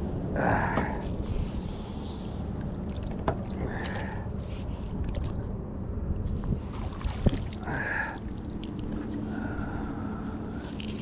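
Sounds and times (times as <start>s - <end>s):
water sloshing: 1.7s - 9.6s.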